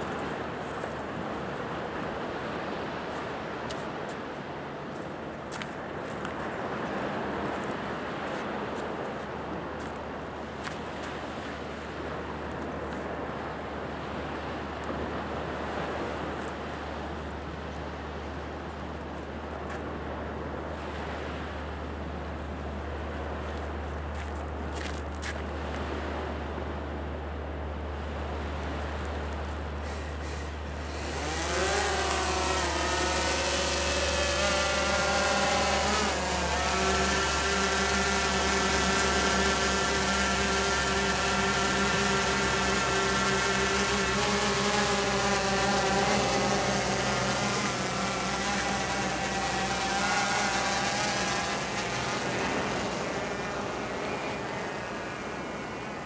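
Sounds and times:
drone propellers whining: 29.7 - 56.0.

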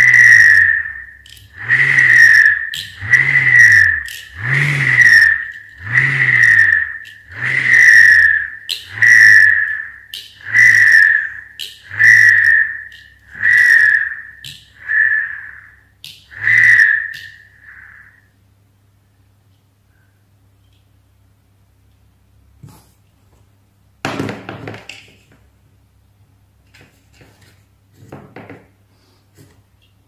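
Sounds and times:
whirligig whirring whistle: 0.0 - 18.4.

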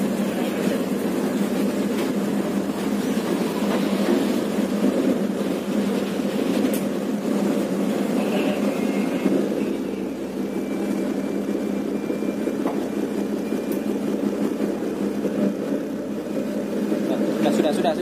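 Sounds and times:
diesel engine drone: 0.0 - 18.0.

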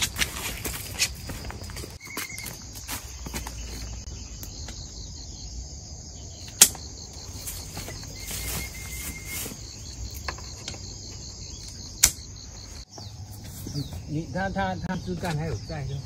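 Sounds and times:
insects chirring: 0.0 - 16.0
pruning shears snapping stem: 12.0 - 12.2.

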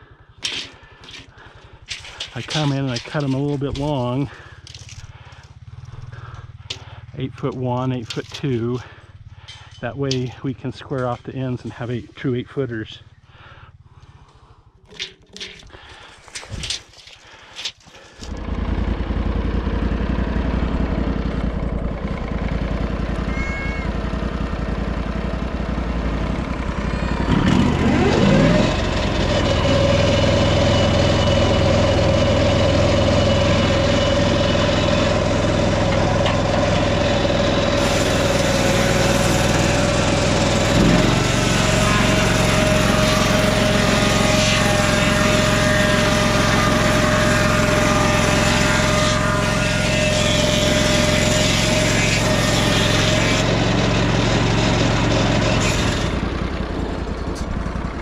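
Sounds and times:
sawmill engine revving: 0.0 - 58.0
circular blade cutting log: 0.4 - 12.3, 14.8 - 19.4, 26.7 - 56.6.

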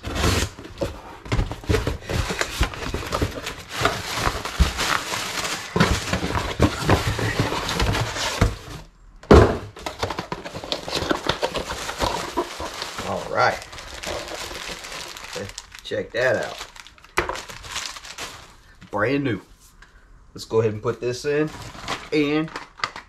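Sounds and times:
cardboard box being opened: 0.0 - 8.9, 9.8 - 15.6
cardboard and packing rustling: 0.0 - 19.8, 21.4 - 23.0
loud thud: 9.3 - 9.7.

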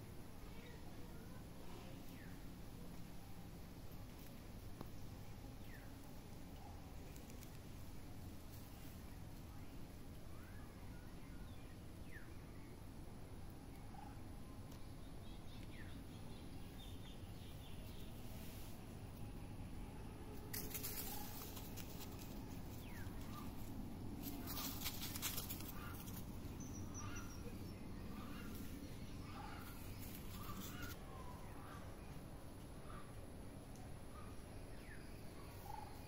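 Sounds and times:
rustling noise: 18.2 - 19.0, 20.4 - 26.6, 29.6 - 31.0
birds calling: 20.6 - 33.2.

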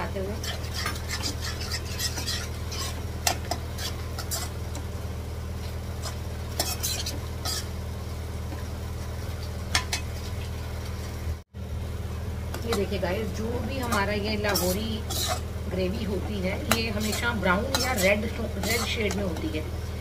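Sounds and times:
steady low hum: 0.0 - 20.0
spoon scraping thick gravy: 0.4 - 4.6, 6.0 - 7.7, 13.8 - 15.5, 16.2 - 19.5.

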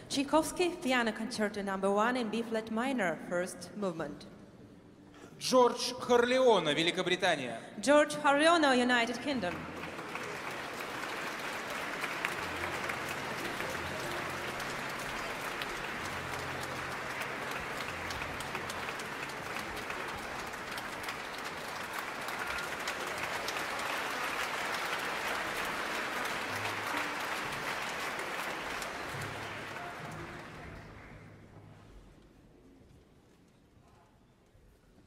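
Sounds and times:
audience applauding: 9.2 - 31.5.

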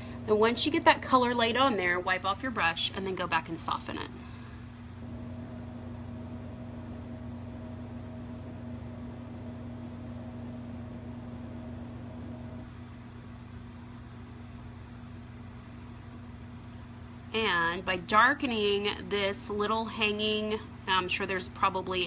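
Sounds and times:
low hum: 0.0 - 2.7, 3.9 - 12.8.

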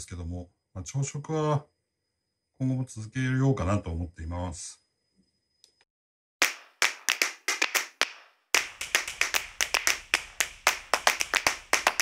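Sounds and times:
sharp clap-like percussive hits: 6.4 - 12.0.

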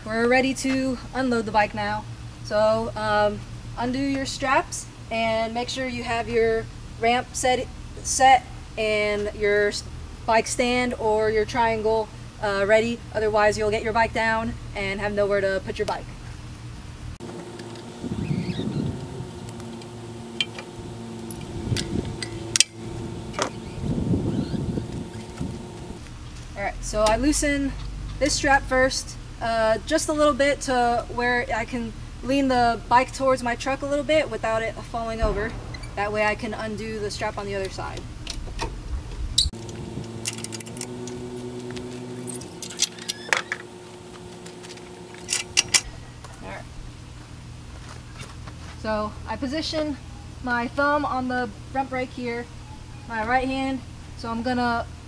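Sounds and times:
strap hooks and ratchet buckle clinking: 39.7 - 41.2, 42.2 - 43.6, 44.6 - 45.9.

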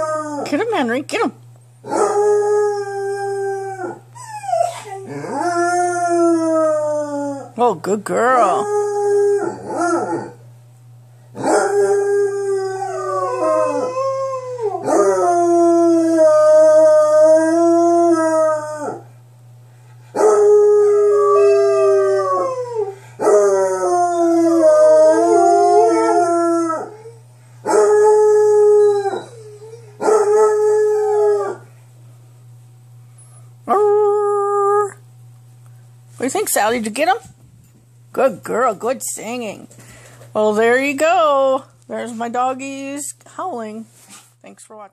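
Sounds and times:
dogs howling: 1.8 - 7.6, 8.3 - 10.4, 11.4 - 19.1, 20.1 - 31.7.

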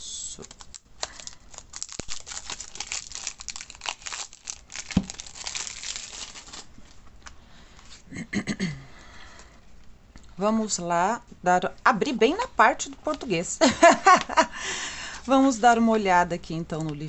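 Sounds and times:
plastic wrap crinkling: 0.3 - 7.4.

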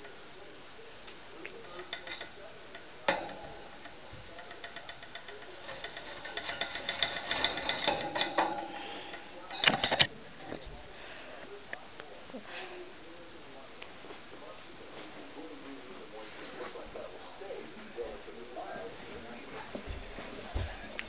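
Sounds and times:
wire cage clicking and rattling: 1.6 - 10.2.

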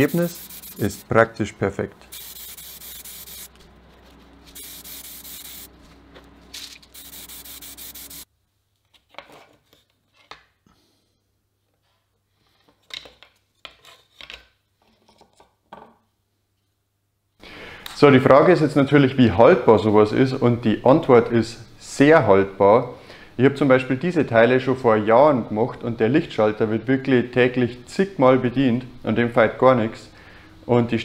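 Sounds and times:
aerosol spray can hissing: 0.0 - 1.0, 2.1 - 3.5, 4.6 - 5.7, 6.9 - 8.3.

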